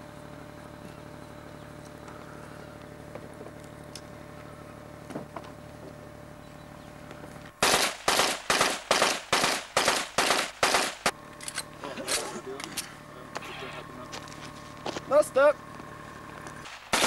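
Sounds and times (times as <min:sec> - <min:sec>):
submachine gun single shots: 0:07.6 - 0:11.2, 0:16.6 - 0:17.0.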